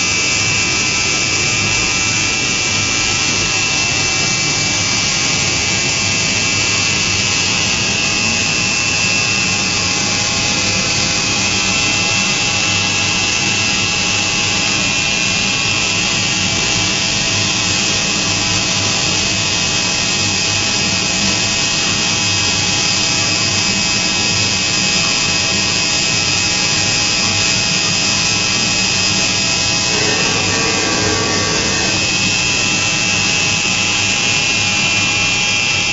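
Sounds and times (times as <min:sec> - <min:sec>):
machine spindle high-pitched whine: 0:29.2 - 0:34.0
metal cutting hiss: 0:29.8 - 0:32.8.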